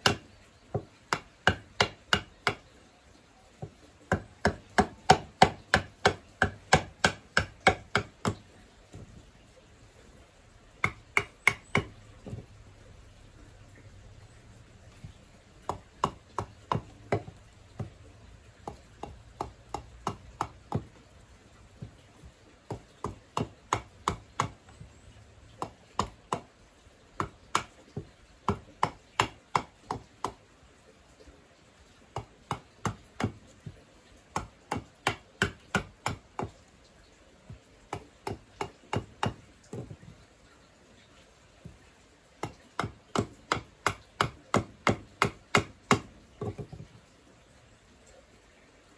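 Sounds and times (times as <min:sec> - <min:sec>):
hatchet chopping wood: 0:00.0 - 0:02.7, 0:03.6 - 0:09.2, 0:10.8 - 0:12.5, 0:14.9 - 0:21.0, 0:21.7 - 0:26.5, 0:27.2 - 0:30.4, 0:32.1 - 0:36.6, 0:37.9 - 0:40.1, 0:42.4 - 0:47.0.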